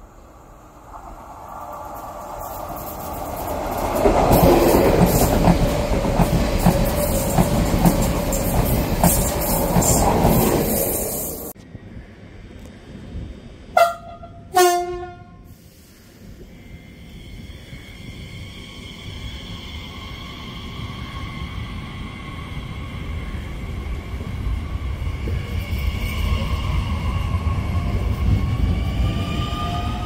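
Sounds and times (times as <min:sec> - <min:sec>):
electric train passing: 0:00.0 - 0:30.0
train wheels clicking over rail joints: 0:01.9 - 0:11.2
train horn blasts: 0:13.7 - 0:15.5.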